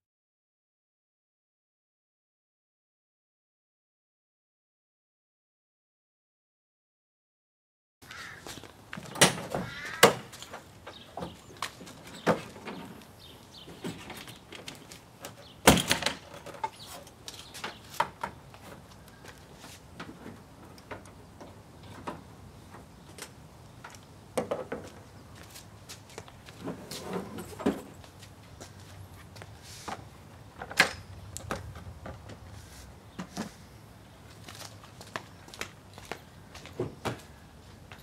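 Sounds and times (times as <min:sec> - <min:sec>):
truck tailgate opening: 0:09.0 - 0:10.3, 0:15.6 - 0:16.6.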